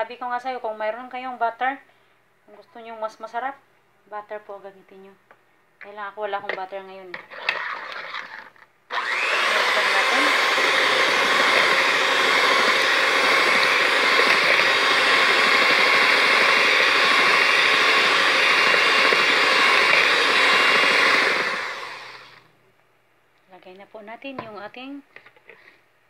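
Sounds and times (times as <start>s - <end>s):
electric hand mixer whirring: 7.3s - 22.4s.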